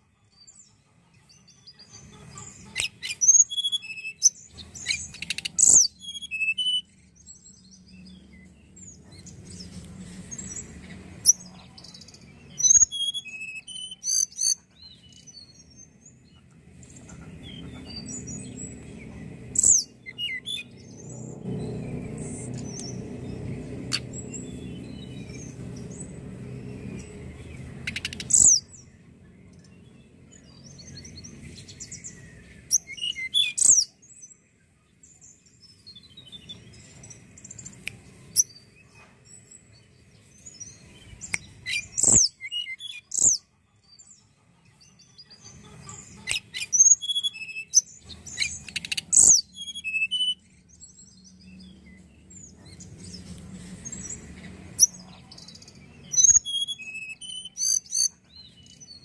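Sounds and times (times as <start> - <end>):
bird singing high whistles: 3.2 - 6.9, 12.6 - 14.3, 48.8 - 50.4, 56.1 - 58.1.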